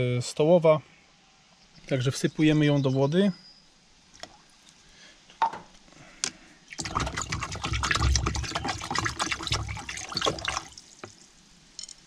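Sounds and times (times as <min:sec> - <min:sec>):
water sloshing in a plastic tub: 0:06.7 - 0:11.4.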